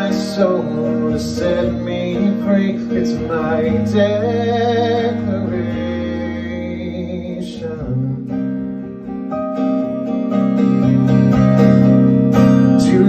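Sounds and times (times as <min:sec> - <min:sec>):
man singing: 0:00.0 - 0:08.6, 0:12.6 - 0:13.0
acoustic guitar strumming: 0:00.0 - 0:13.0.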